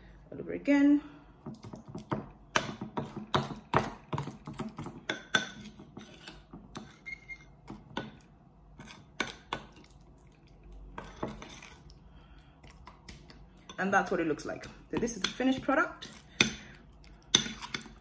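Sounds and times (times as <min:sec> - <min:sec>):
metal spoon scraping ceramic bowl: 0:05.1 - 0:07.6.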